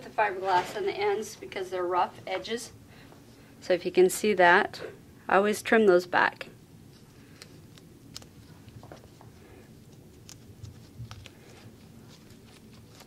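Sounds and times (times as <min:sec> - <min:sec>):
gloved hands rustling: 0:06.9 - 0:13.0.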